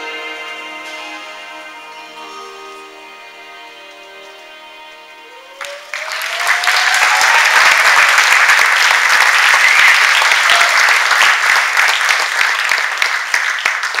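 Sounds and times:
person whooping: 5.3 - 8.2
audience applauding: 5.4 - 14.0.

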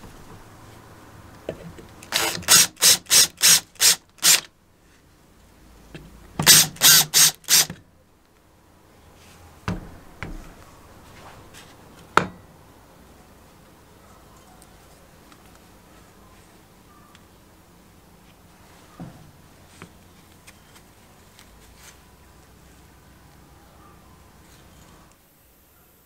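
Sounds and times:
cordless drill bursts on steel: 2.0 - 4.5, 6.4 - 7.8.

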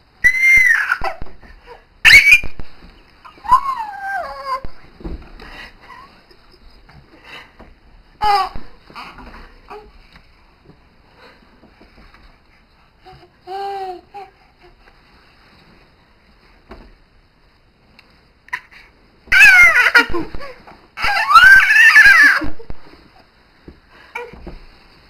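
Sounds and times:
baby shrieking with laughter: 0.2 - 2.6, 3.4 - 4.8, 19.3 - 22.7.

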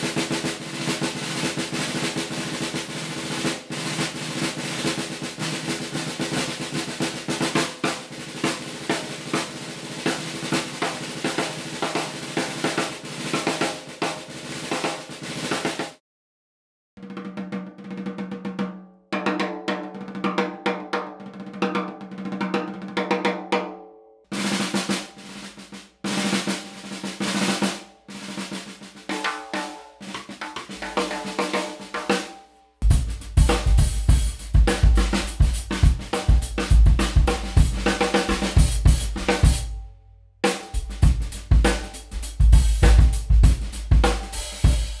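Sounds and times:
snare drum played with sticks: 0.0 - 16.0, 17.0 - 23.6, 24.3 - 39.8, 40.4 - 45.0
bass drum: 32.8 - 39.7, 40.5 - 45.0.

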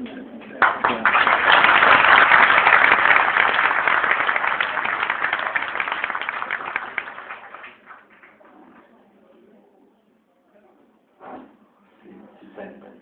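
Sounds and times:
audience applauding: 0.6 - 8.5.

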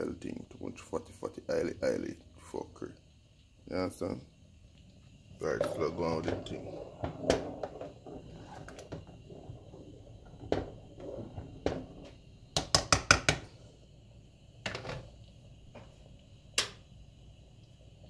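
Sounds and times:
spoon stirring porridge: 5.4 - 13.4
spoon knocking against pot: 12.6 - 13.4.

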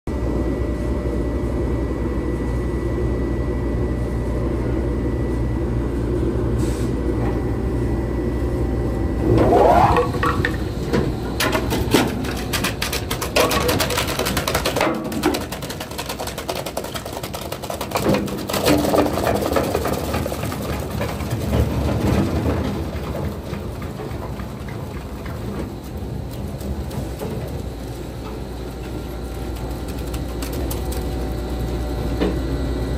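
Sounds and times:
shredder machine hum: 8.7 - 32.9
rising machine whine: 8.8 - 11.2.

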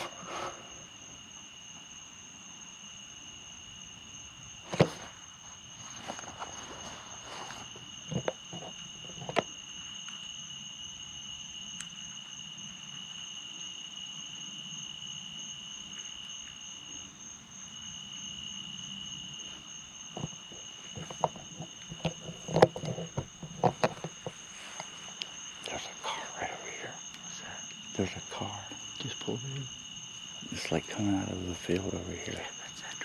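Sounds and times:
crickets trilling: 0.0 - 33.0
clicks and rustles: 20.1 - 25.8.

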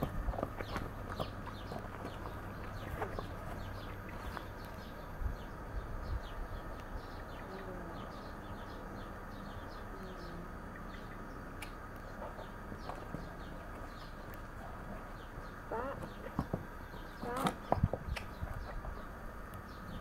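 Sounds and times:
horse hooves on rubber mats: 0.0 - 4.7, 15.9 - 19.0
low clucking calls: 0.0 - 19.7
small birds chirping: 0.0 - 20.0.

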